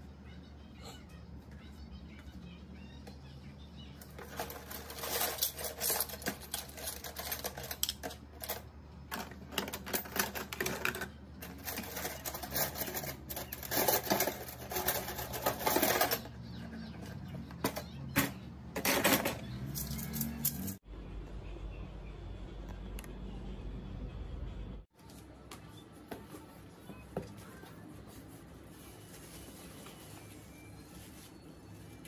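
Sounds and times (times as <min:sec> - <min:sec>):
kitchenware clicking and clattering: 0:04.0 - 0:20.8.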